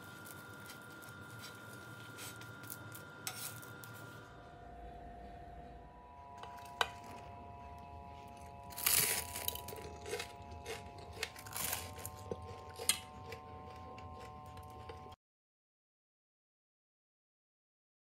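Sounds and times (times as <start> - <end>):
crispy dosa crackling: 0.0 - 4.2, 6.5 - 15.1.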